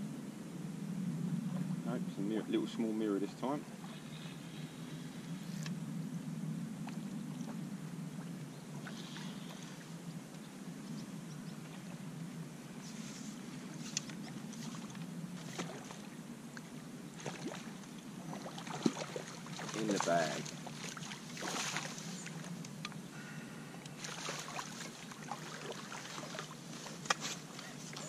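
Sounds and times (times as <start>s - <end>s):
steady low rumble: 0.0s - 28.0s
fish splashing at the surface: 18.3s - 22.0s, 24.0s - 26.6s.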